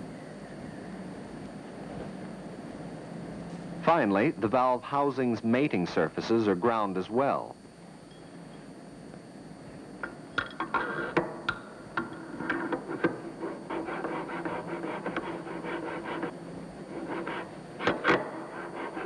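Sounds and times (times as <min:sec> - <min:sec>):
metal scraping on metal: 0:10.6 - 0:11.2.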